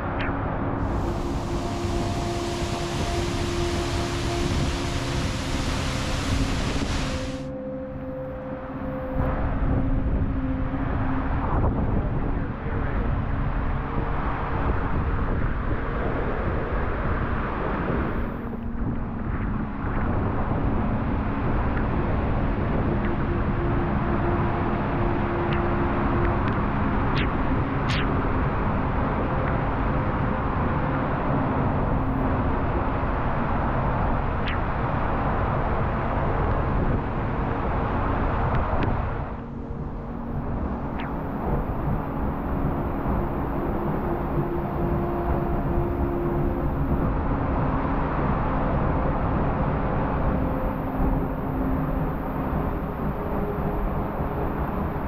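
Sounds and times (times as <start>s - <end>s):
higher hiss of water: 0.9s - 7.5s
waterfall roaring: 0.9s - 7.5s.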